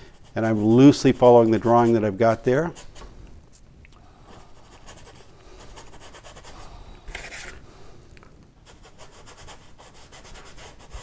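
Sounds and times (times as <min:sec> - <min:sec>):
paintbrush scrubbing canvas: 0:00.0 - 0:03.0, 0:04.3 - 0:07.6, 0:08.6 - 0:11.0.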